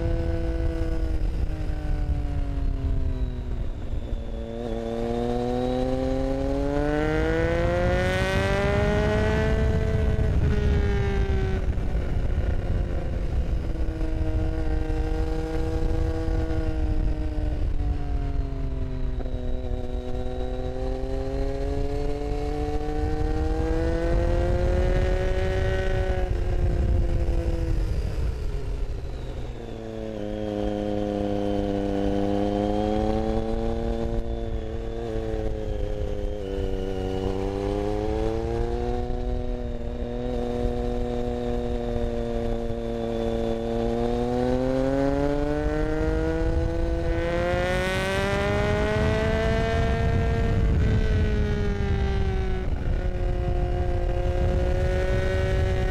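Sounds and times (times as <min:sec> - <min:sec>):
motorcycle engine accelerating: 0:00.0 - 0:55.9.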